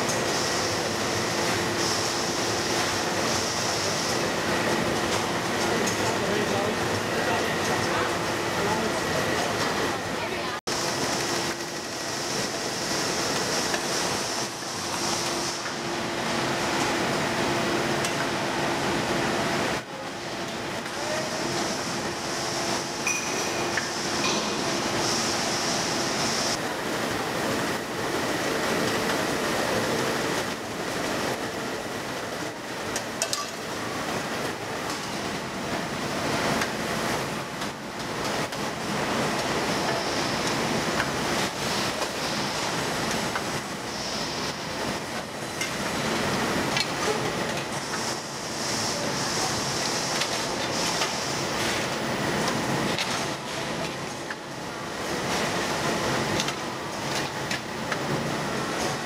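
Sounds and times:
production line machinery running: 0.0s - 59.0s.

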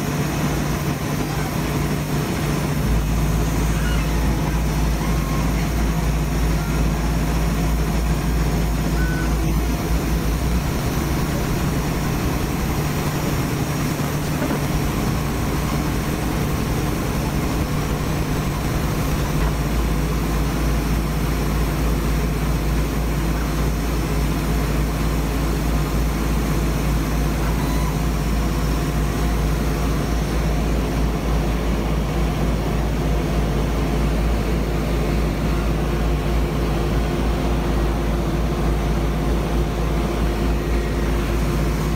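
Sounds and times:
laser cutter droning: 0.0s - 31.4s.

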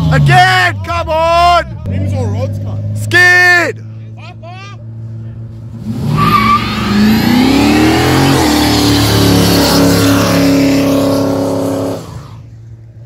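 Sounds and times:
car engine revving: 5.0s - 12.8s.

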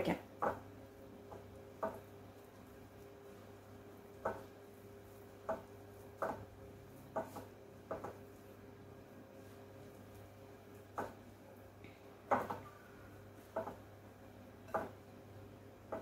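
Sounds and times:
hand mixing flour in bowl: 0.6s - 14.1s.

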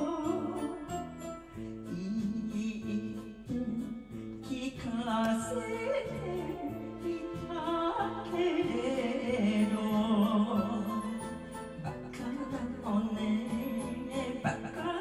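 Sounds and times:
woman singing into microphone: 0.0s - 1.0s, 4.4s - 15.0s
karaoke backing track with bass: 0.0s - 15.0s.

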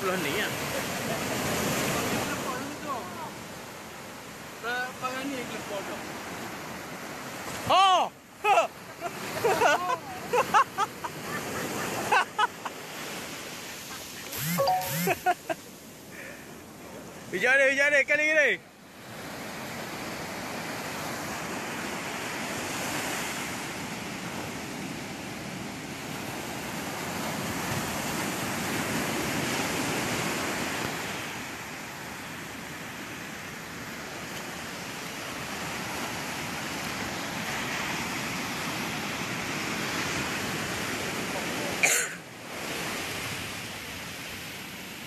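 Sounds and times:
waves breaking on beach: 0.0s - 45.0s.

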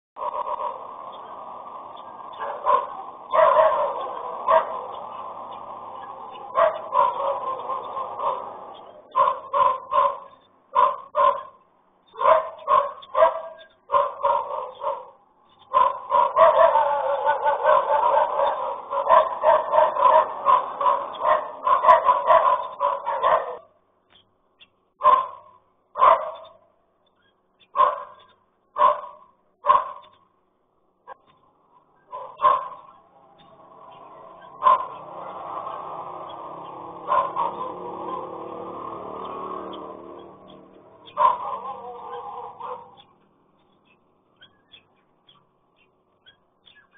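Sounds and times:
dog barking: 0.2s - 1.2s, 2.3s - 5.4s, 6.0s - 23.8s, 25.0s - 26.7s, 27.6s - 30.2s, 32.0s - 36.0s, 36.6s - 43.1s.

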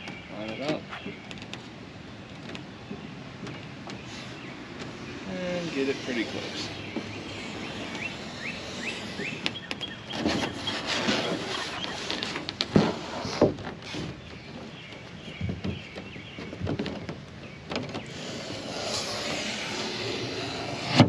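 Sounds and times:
metal straight edge scraping foam: 4.1s - 14.2s, 18.0s - 21.0s.

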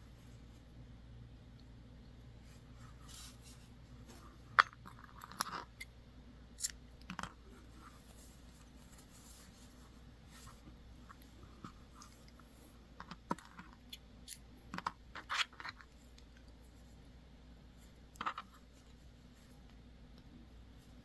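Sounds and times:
wool rustling: 7.4s - 12.8s.

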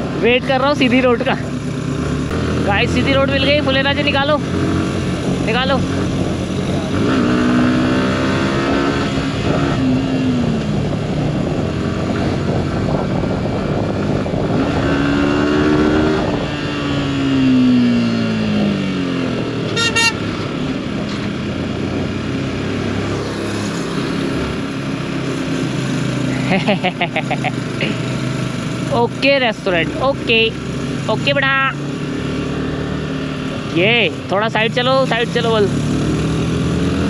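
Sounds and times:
motorcycle engine revving: 0.0s - 37.0s
wind rush: 4.3s - 26.3s.

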